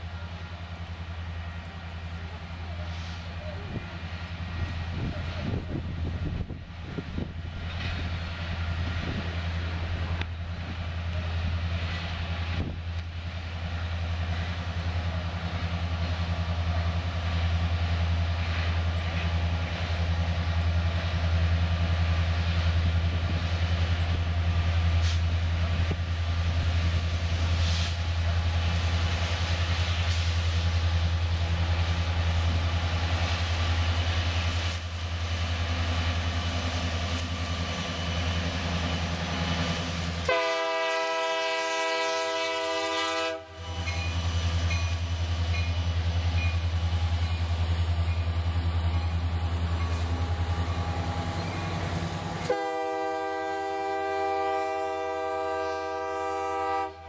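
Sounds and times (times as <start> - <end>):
diesel locomotive engine drone: 0.0 - 57.0.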